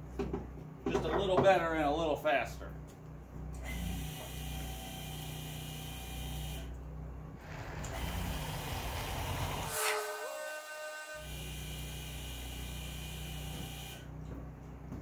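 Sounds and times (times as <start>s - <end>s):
hydraulic pump humming and hissing: 7.3s - 14.2s.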